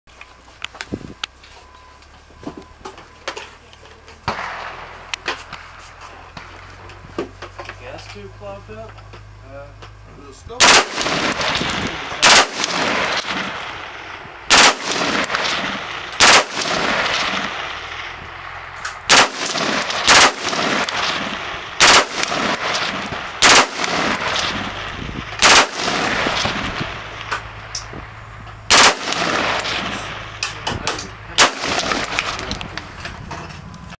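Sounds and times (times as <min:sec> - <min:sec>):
rifle shots: 0:04.2 - 0:05.7, 0:10.6 - 0:28.1, 0:28.7 - 0:33.0.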